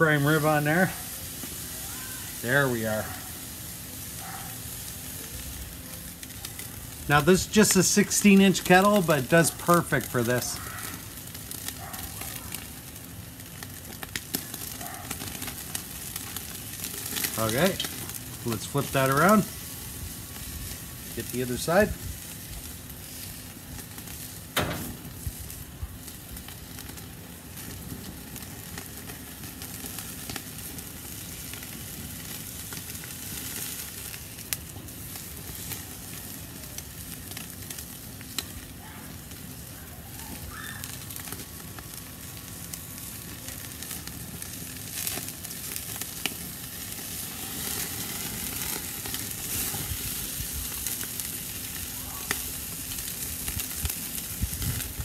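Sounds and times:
meat sizzling on a grill: 0:00.0 - 0:55.0.

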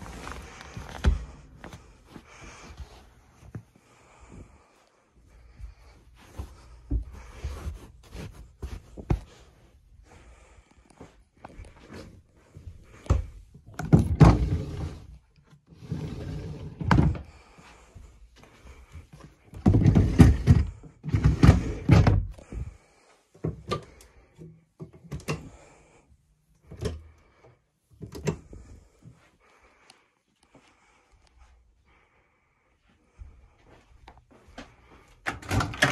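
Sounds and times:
wooden drawer sliding scrapes: 0:15.8 - 0:17.2.

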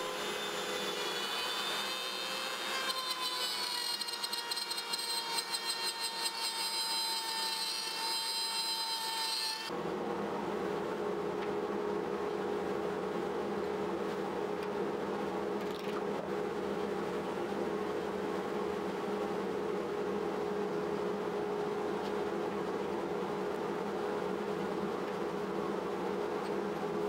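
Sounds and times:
router cutting wood: 0:00.0 - 0:09.7
steady low hum: 0:09.7 - 0:27.0.

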